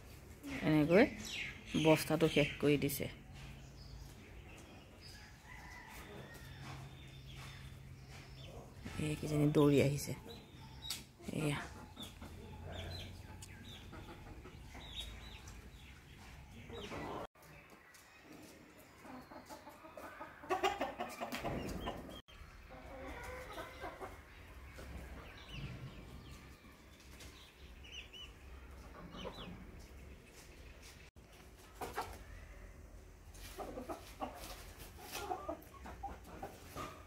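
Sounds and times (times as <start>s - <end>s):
chickens clucking: 0.0s - 37.0s.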